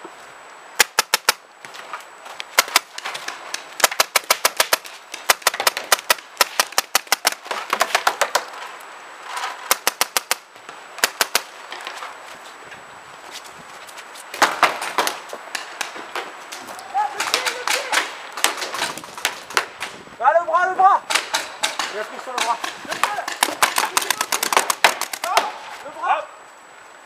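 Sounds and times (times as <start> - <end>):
paintball markers firing: 0.8 - 1.4, 2.6 - 8.6, 9.6 - 11.6, 14.4 - 20.0, 21.1 - 25.7.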